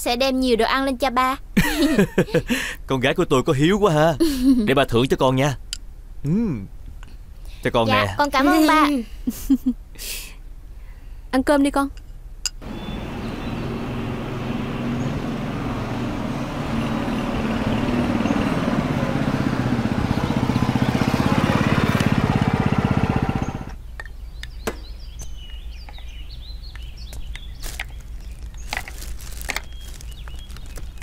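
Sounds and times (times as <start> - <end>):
faint bird chirps: 12.6 - 15.4, 23.8 - 28.7
motorbike engine running: 12.6 - 23.8.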